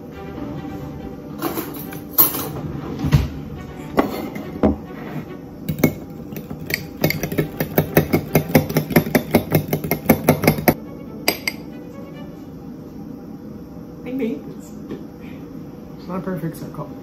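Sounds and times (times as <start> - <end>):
fork clinking against glass bowl: 5.7 - 11.7.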